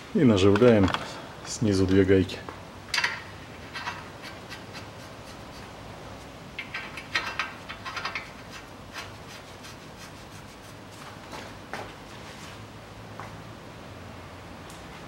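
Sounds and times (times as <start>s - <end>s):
nuts threaded onto metal studs: 2.9s - 4.4s, 6.6s - 8.7s.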